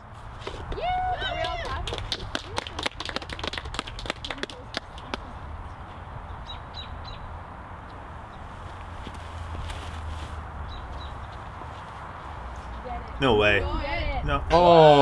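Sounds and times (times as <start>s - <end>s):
birds chattering calls: 10.6s - 13.5s.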